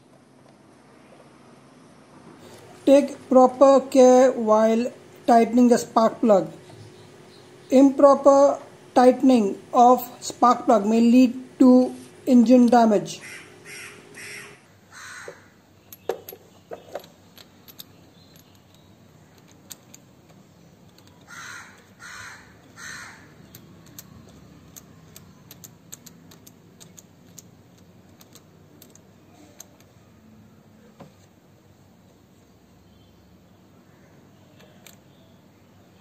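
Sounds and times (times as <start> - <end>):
crow cawing: 13.2 - 15.6, 21.3 - 23.3.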